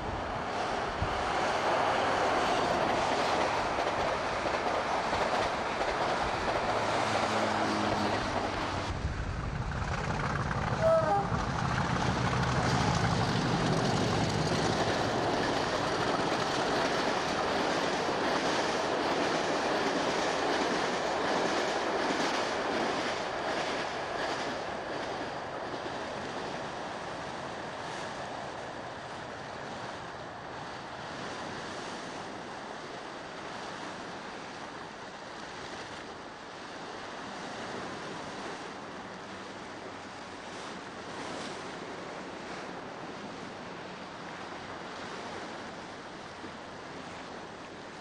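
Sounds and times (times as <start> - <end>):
wind on microphone: 0.0 - 24.7
passenger train running: 0.0 - 35.6.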